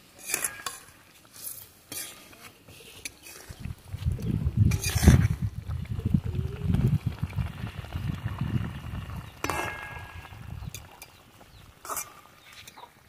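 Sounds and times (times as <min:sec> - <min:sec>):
spatula stirring in wok: 0:00.0 - 0:05.5
low rumble: 0:03.7 - 0:09.4.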